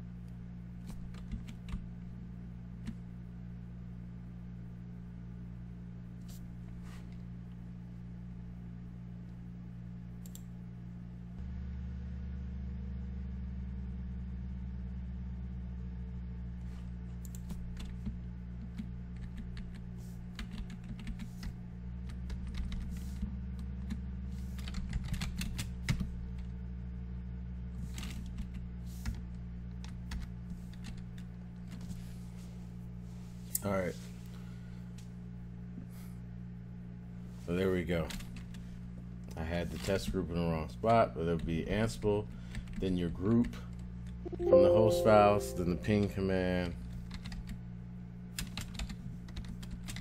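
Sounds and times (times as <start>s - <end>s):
steady low hum: 0.0s - 42.8s
computer keyboard typing: 0.9s - 1.8s, 20.4s - 21.5s, 22.1s - 22.9s, 24.6s - 26.0s, 48.4s - 50.0s.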